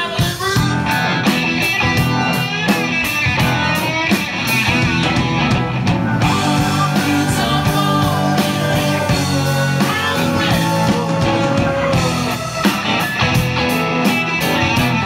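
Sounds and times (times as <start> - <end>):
rock band playing: 0.0 - 15.0
man singing: 6.2 - 12.5.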